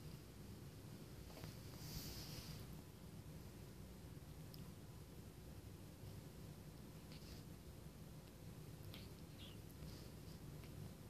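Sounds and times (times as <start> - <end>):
soft rustle: 0.0 - 2.9, 5.9 - 11.0
low steady hum: 0.0 - 11.0.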